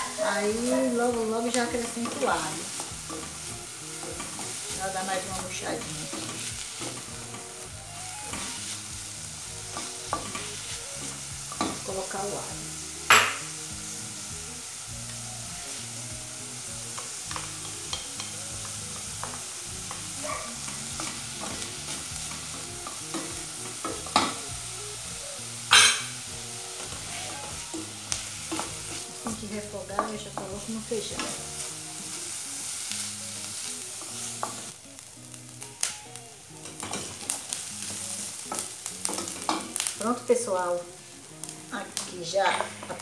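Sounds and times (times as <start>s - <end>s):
onions sizzling in oil: 0.0s - 43.0s
spoon knocking against pan: 13.1s - 13.4s, 23.1s - 24.4s.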